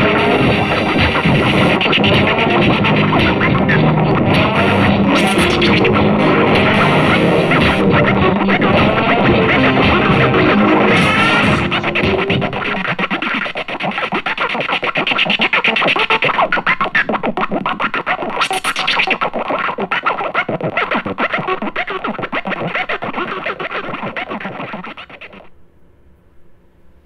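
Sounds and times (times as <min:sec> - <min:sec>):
glitchy electronic music: 0:00.0 - 0:19.2.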